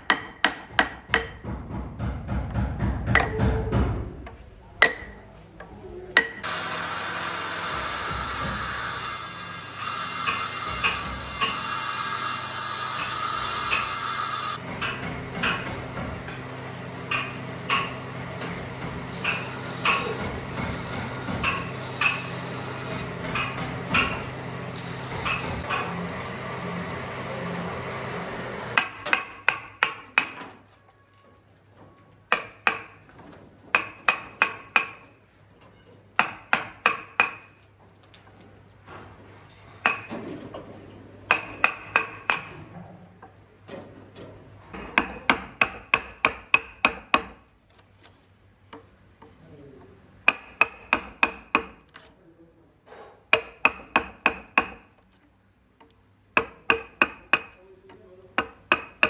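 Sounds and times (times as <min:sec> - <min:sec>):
hammer striking nails: 0:00.0 - 0:04.0, 0:10.2 - 0:11.6, 0:17.1 - 0:22.3, 0:23.1 - 0:24.3, 0:28.8 - 0:30.6, 0:32.3 - 0:33.0, 0:33.7 - 0:35.0, 0:36.2 - 0:37.5, 0:39.8 - 0:40.2, 0:41.3 - 0:42.5, 0:44.8 - 0:47.4, 0:50.3 - 0:51.9, 0:53.3 - 0:54.9, 0:56.4 - 0:57.6, 0:58.4 - 0:59.0.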